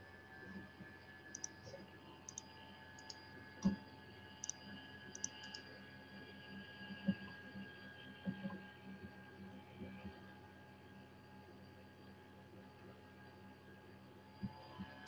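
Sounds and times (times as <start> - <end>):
faint steady hum: 0.0 - 15.0
computer mouse clicking: 1.3 - 1.7, 2.3 - 3.8, 4.4 - 5.6.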